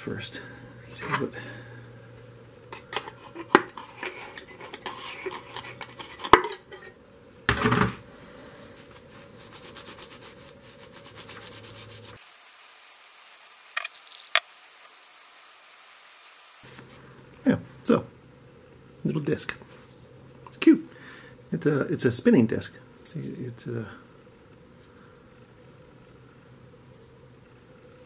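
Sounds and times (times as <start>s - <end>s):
metal pick scraping metal: 2.7s - 7.0s
quick scratching strokes: 8.6s - 12.3s.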